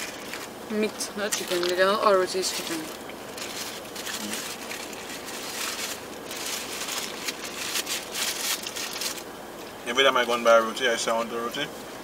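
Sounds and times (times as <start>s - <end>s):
paper wrapper rustling: 0.0s - 0.5s, 1.4s - 9.3s.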